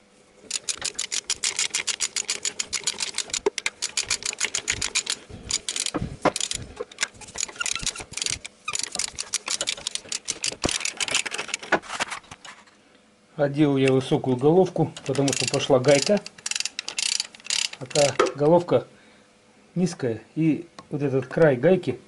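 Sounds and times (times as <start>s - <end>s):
ratchet wrench clicking rapidly: 0.5s - 11.7s, 15.0s - 18.2s.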